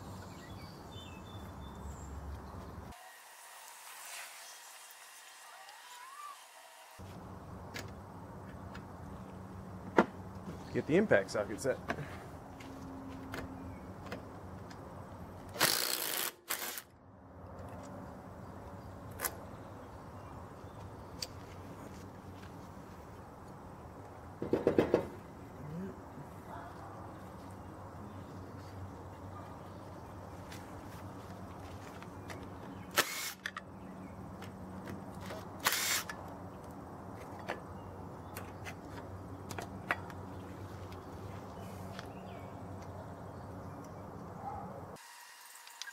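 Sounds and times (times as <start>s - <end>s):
impact driver bursts: 33.0s - 33.4s, 35.6s - 36.1s.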